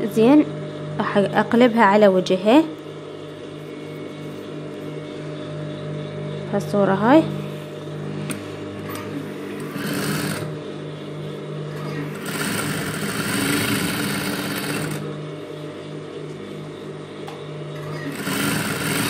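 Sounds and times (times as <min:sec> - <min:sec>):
steady low hum: 0:00.0 - 0:19.0
sewing machine stitching: 0:09.6 - 0:10.5, 0:11.8 - 0:15.0, 0:17.8 - 0:19.0.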